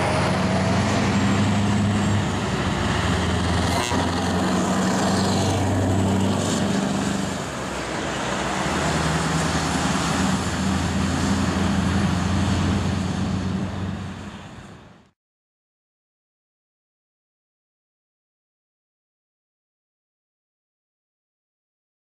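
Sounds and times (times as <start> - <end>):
truck diesel engine humming: 0.0 - 15.1
tyre and road noise: 0.0 - 15.1.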